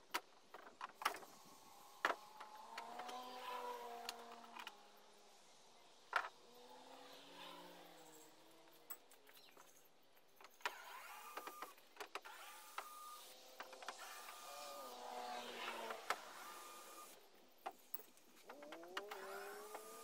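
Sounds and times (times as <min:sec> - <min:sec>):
electric drill motor whine: 0:10.7 - 0:17.2, 0:18.6 - 0:20.0.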